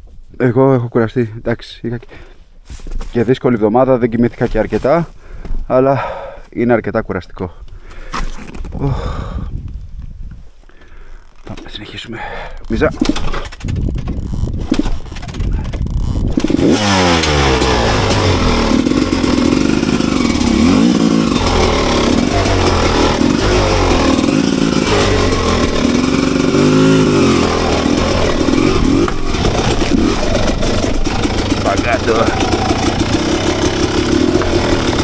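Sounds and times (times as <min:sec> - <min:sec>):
motorcycle starter cranking: 0:12.5 - 0:35.0
motorcycle engine revving: 0:13.0 - 0:35.0.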